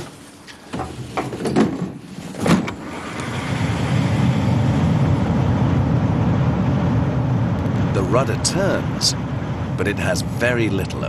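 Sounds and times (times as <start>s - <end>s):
wind tunnel fan rushing air: 2.8s - 11.0s.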